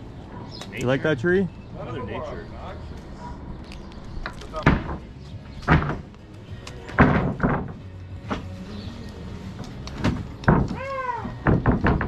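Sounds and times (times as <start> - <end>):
knocks on wooden framing: 4.6 - 6.1, 6.9 - 8.5, 10.0 - 12.0.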